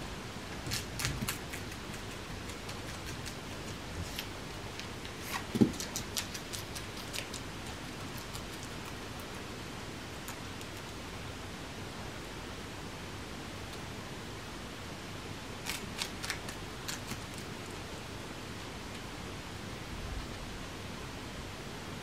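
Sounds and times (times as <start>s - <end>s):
guinea pigs crunching lettuce: 0.5s - 9.5s, 10.1s - 11.1s, 15.6s - 17.9s.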